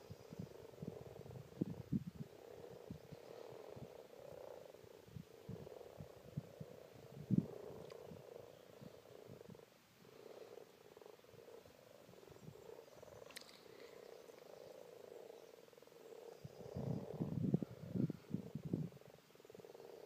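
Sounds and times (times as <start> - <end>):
frogs croaking: 0.0 - 20.0
faint click: 7.8 - 8.0, 13.2 - 14.5.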